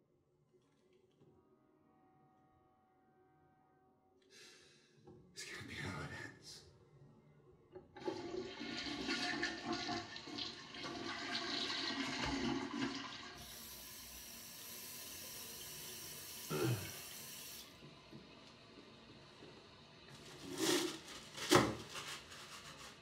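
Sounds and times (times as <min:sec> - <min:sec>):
toilet flushing: 0:07.9 - 0:23.0.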